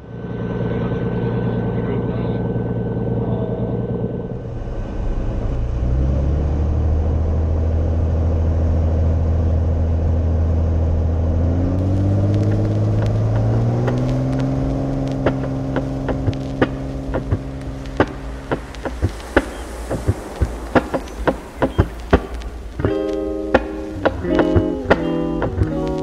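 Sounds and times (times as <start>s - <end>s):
propeller aircraft engine running: 6.6s - 26.0s
sharp clicks: 11.8s - 26.0s.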